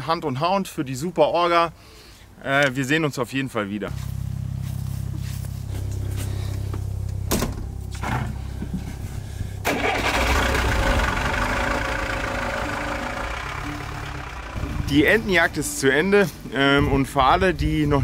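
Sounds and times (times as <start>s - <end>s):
vehicle engine idling: 3.9s - 16.0s.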